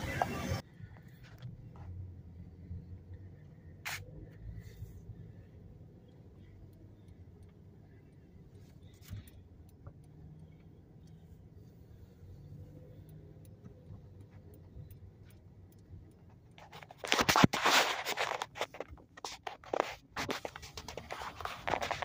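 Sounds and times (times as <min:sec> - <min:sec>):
phone being handled: 0:16.6 - 0:22.0.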